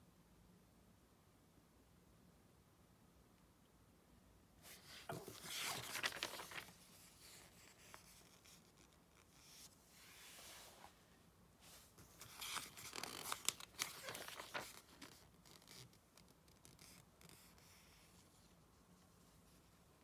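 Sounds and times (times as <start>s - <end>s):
magazine pages turning: 4.7s - 8.6s, 12.0s - 16.0s.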